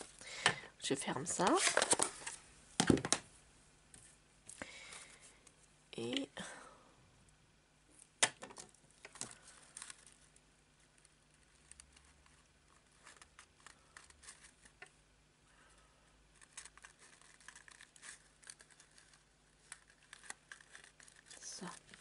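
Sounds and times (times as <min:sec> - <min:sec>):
paper rustling and crinkling: 0:01.4 - 0:02.4, 0:09.0 - 0:14.9, 0:16.3 - 0:22.0.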